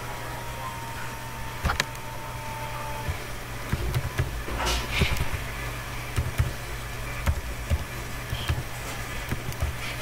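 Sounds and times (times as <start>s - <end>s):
steady low hum: 0.0s - 10.0s
keyboard keys tapped: 3.1s - 5.5s, 6.1s - 6.6s, 7.2s - 10.0s.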